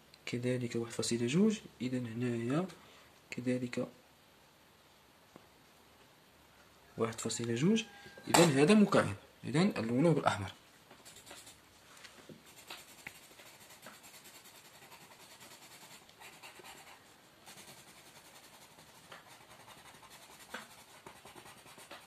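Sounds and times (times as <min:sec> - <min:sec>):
pencil scratching on paper: 0:11.0 - 0:11.6, 0:12.4 - 0:22.0.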